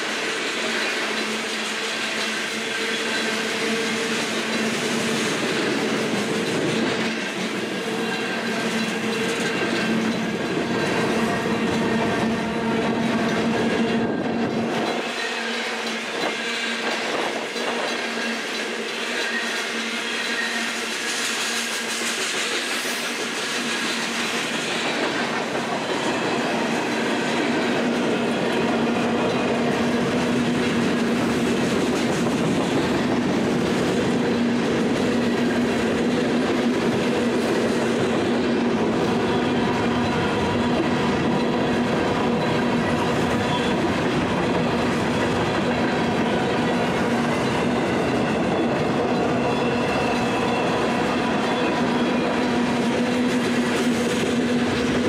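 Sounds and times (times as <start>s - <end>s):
train wheels clattering on rails: 0.0s - 55.0s.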